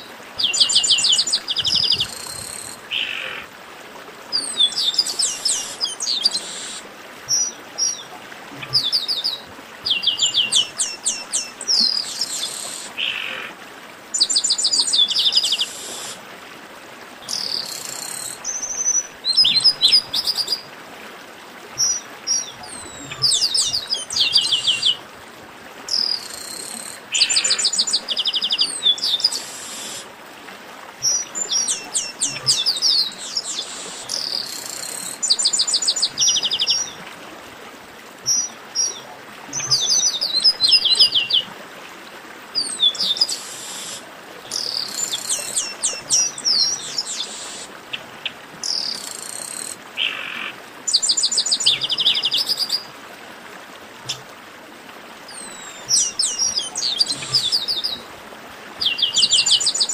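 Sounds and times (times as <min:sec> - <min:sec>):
steady hiss: 0:15.6 - 0:16.2, 0:29.3 - 0:30.1, 0:33.2 - 0:35.2, 0:43.3 - 0:45.4
blackbirds singing: 0:42.6 - 0:47.7, 0:55.3 - 0:58.0.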